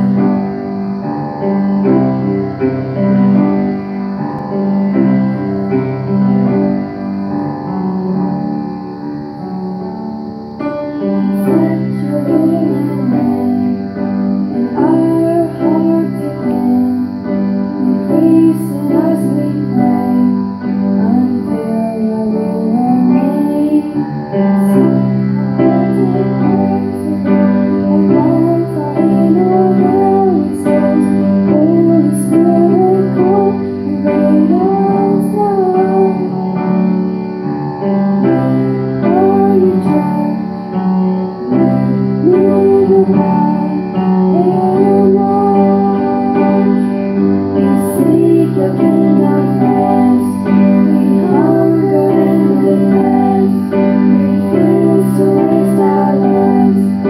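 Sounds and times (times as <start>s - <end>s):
grand piano playing: 0.0s - 57.0s
women singing: 11.3s - 36.5s, 39.0s - 40.7s, 41.4s - 57.0s.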